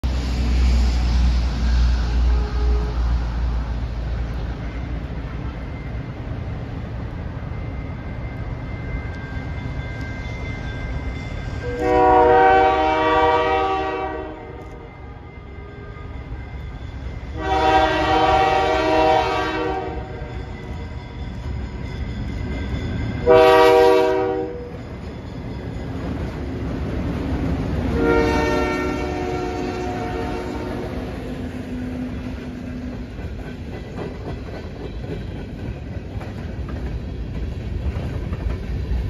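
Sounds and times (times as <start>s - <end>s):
locomotive air horn blasts: 2.2s - 3.1s, 11.6s - 14.9s, 17.4s - 20.1s, 23.2s - 24.7s, 27.9s - 31.1s.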